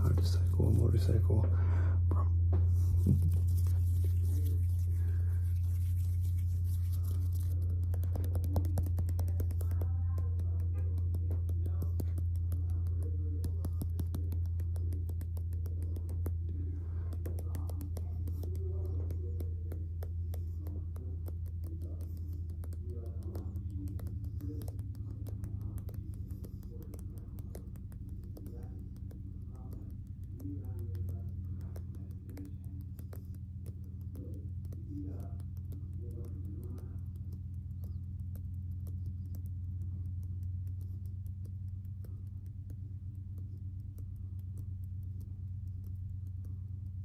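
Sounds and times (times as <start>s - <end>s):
steady low hum: 0.0s - 47.0s
hands rubbing at microphone: 2.5s - 40.1s.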